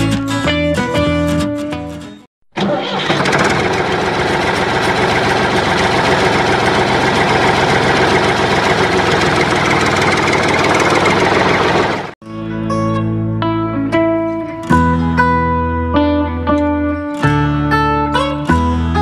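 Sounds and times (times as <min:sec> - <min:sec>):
tractor engine idling: 0:02.6 - 0:12.2.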